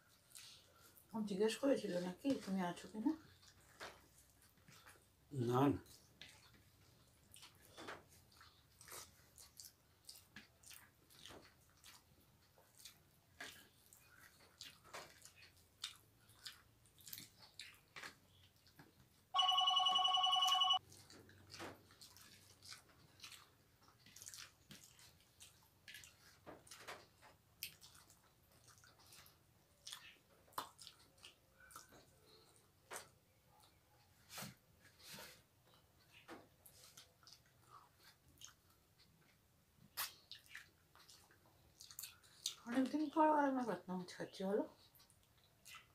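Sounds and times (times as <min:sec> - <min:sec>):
people eating with fingers: 0:00.0 - 0:01.1, 0:02.0 - 0:43.2, 0:44.7 - 0:45.9
phone ringtone chord: 0:19.4 - 0:20.8
lip smacks: 0:27.6 - 0:32.2, 0:36.0 - 0:42.7.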